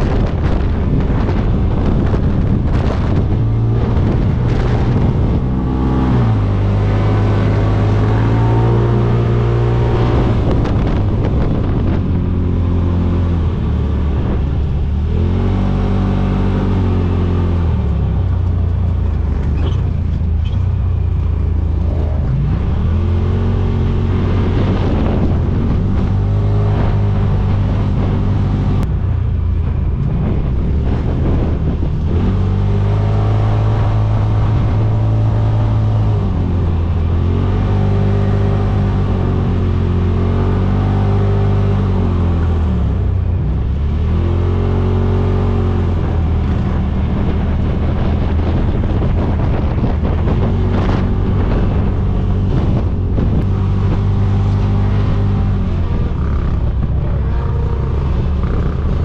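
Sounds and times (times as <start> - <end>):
utv engine revving: 0.0 - 59.0.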